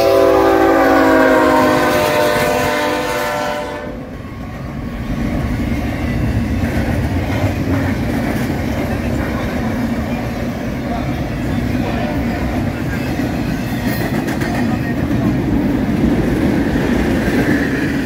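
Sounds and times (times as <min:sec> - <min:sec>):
train air horn chord: 0:00.0 - 0:04.0
freight cars rumbling and clattering: 0:04.1 - 0:18.0.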